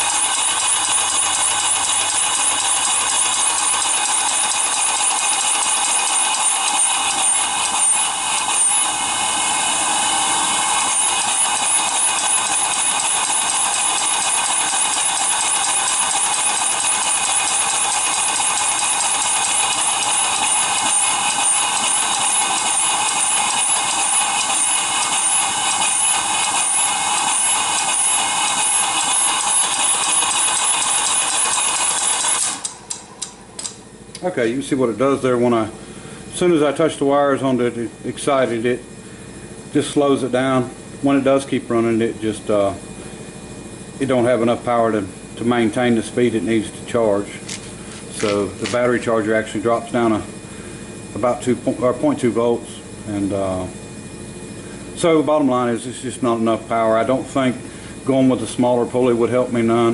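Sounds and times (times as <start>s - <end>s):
steam engine running: 0.0s - 33.8s, 41.8s - 59.9s.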